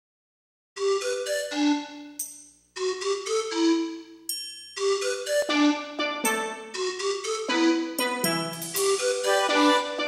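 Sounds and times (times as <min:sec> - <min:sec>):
bell-like struck melody: 0:02.2 - 0:03.4, 0:04.2 - 0:05.6, 0:08.0 - 0:09.6.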